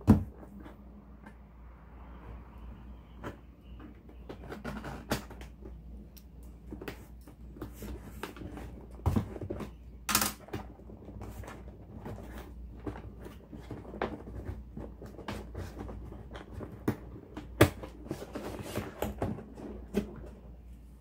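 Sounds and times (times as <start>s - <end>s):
scrapes and rustles on cardboard: 6.6s - 10.0s, 10.6s - 20.8s.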